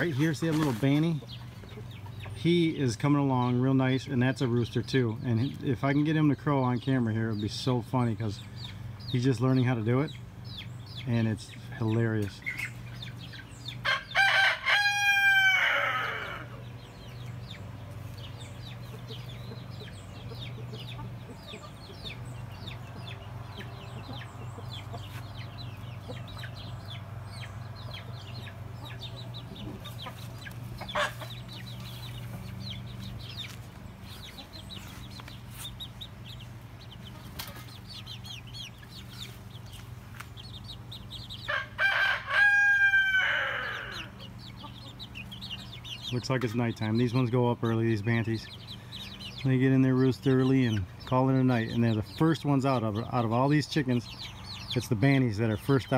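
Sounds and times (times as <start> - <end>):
young rooster crowing: 13.8 - 16.6, 41.4 - 44.2
hens clucking softly: 15.5 - 41.7, 43.3 - 53.2.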